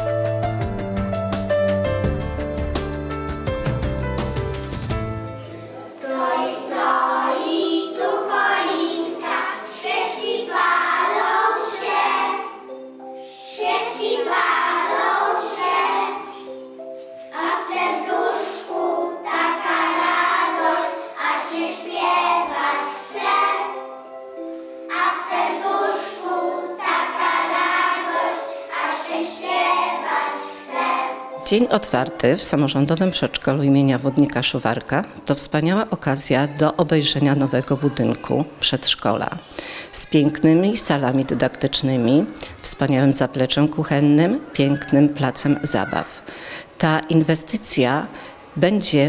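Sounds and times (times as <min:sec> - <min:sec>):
children singing: 0:05.4 - 0:24.0, 0:24.9 - 0:31.4.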